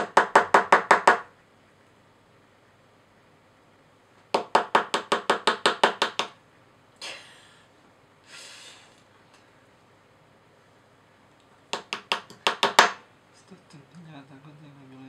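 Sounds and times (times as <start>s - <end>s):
plastic mallet tapping a chisel: 11.7s - 13.0s.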